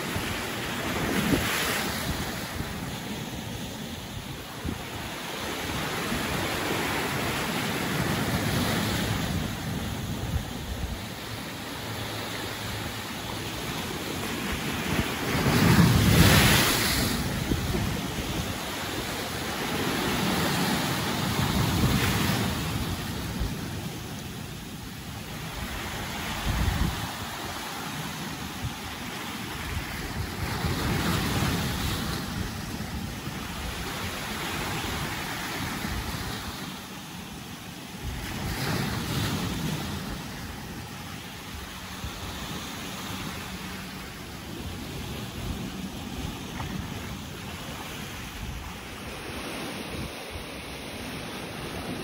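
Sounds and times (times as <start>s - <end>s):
wind buffeting microphone: 0.0s - 36.5s
waves breaking on rocky shore: 0.0s - 52.0s.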